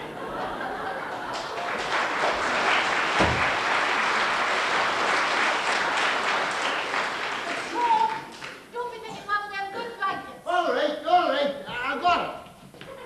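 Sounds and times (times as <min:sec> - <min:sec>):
audience applauding: 0:00.0 - 0:08.6
low thump: 0:03.2 - 0:03.5.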